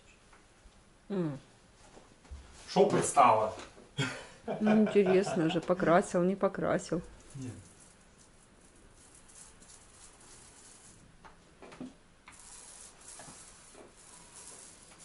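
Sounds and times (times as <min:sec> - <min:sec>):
paintbrush scratching: 0:07.0 - 0:11.1, 0:12.3 - 0:15.0.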